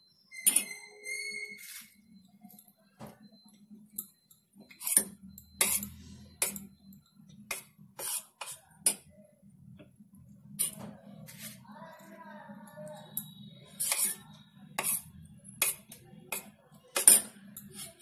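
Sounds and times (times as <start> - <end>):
spoon clinking against metal bowl: 3.9 - 9.1, 13.0 - 18.0.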